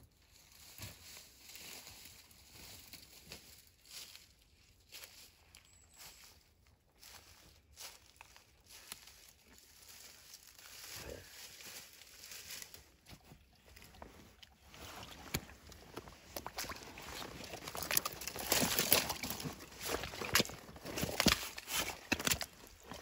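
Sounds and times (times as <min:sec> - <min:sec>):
footsteps on gravel and leaves: 0:00.2 - 0:23.0.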